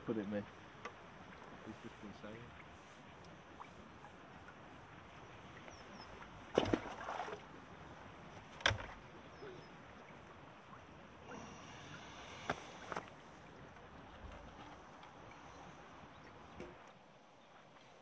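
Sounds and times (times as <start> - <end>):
fishing tackle knocks and clatter: 8.6 - 9.0.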